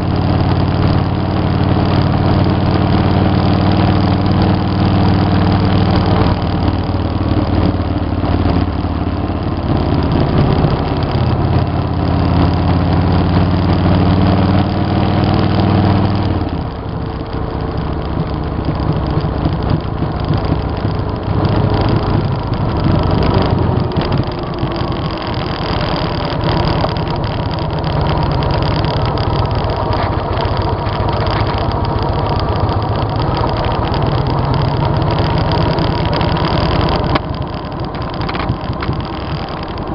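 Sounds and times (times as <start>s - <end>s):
motorcycle engine running: 0.0s - 39.9s
wind rush: 16.3s - 39.9s.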